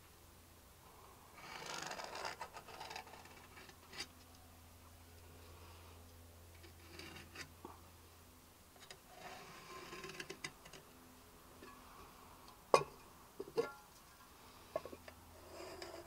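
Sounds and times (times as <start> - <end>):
pen scratching on wooden board: 1.4 - 4.1.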